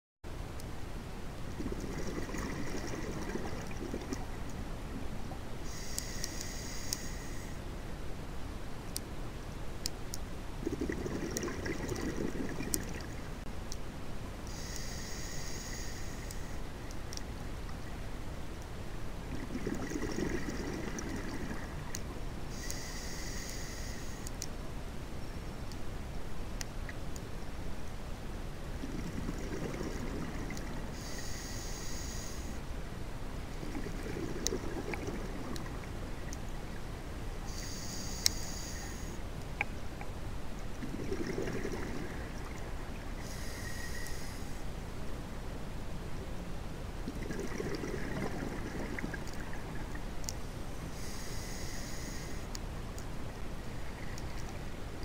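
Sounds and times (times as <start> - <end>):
exhaled bubbles gurgling: 1.5 - 5.4, 10.6 - 13.4, 19.3 - 22.0, 28.8 - 31.1, 33.6 - 36.8, 40.8 - 43.8, 47.1 - 50.0
hissing inhalation: 14.5 - 16.6, 37.5 - 39.2, 43.2 - 44.6, 51.0 - 52.5.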